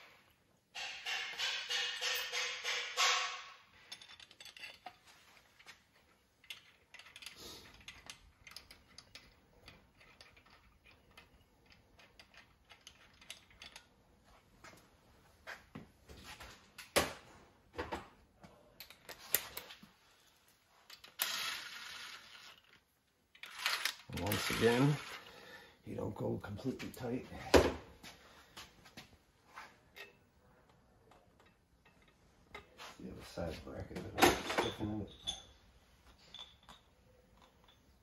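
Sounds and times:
tools clinking on metal parts: 0.8s - 5.0s, 5.6s - 14.0s, 29.9s - 32.8s, 34.2s - 38.0s.

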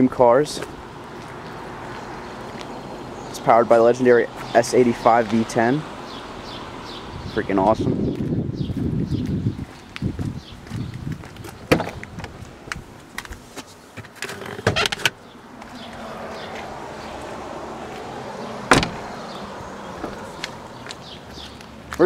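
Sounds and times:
car door thunk: 11.6s - 12.3s, 18.6s - 19.1s
car door latch click: 18.7s - 19.0s.

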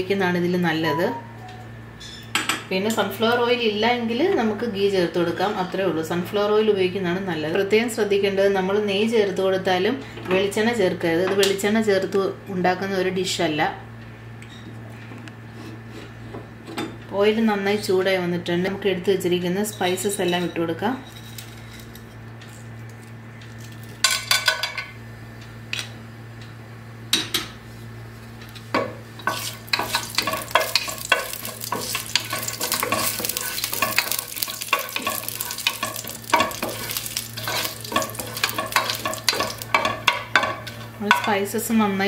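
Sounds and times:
spices clattering into a pot: 28.8s - 41.4s
spices sizzling in oil: 29.0s - 41.4s.

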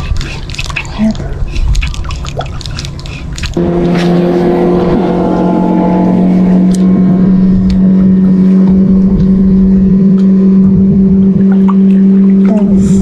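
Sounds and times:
motorboat engine droning: 2.7s - 13.0s.

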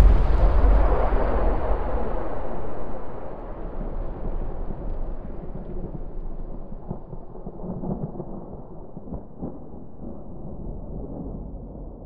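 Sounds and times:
deep explosion rumble: 0.0s - 7.2s.

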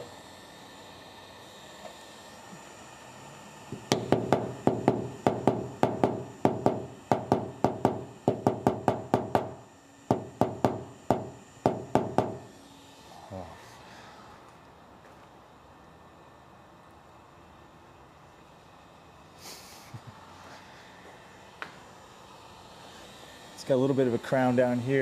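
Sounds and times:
hammer tapping on car panel: 3.8s - 12.5s.

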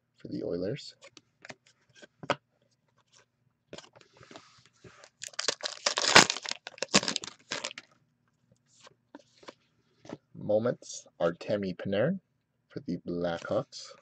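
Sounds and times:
wrapper ripping and crinkling: 5.2s - 7.8s.

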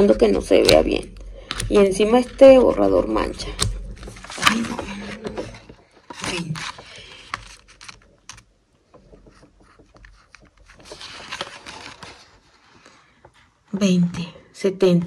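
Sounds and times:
paper sheets rustling: 2.0s - 13.6s
pencil scratching on paper: 9.0s - 12.2s.

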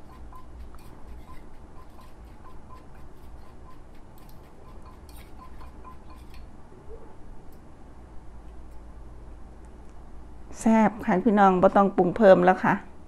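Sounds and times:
pestle tapping and scraping mortar: 0.0s - 6.4s.

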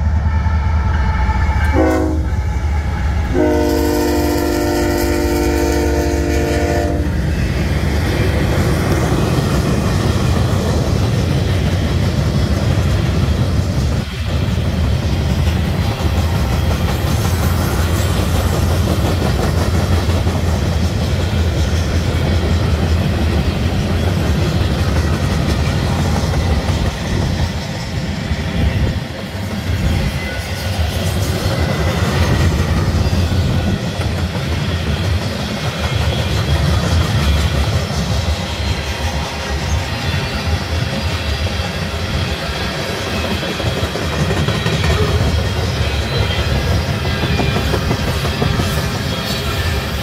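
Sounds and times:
train wheels rumbling on rails: 0.0s - 50.0s.

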